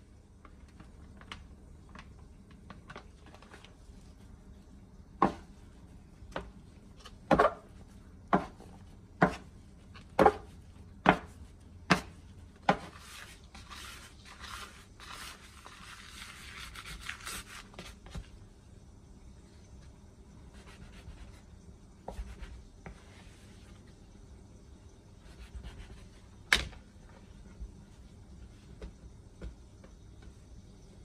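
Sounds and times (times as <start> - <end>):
dough knocking on worktop: 5.2 - 5.5, 7.2 - 13.0
scraper scraping worktop: 12.7 - 18.0.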